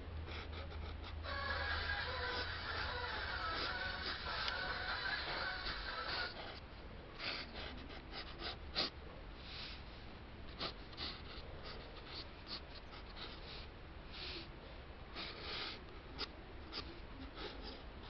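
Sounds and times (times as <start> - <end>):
low hum: 0.0 - 7.2
pencil scratching on paper: 10.6 - 13.5.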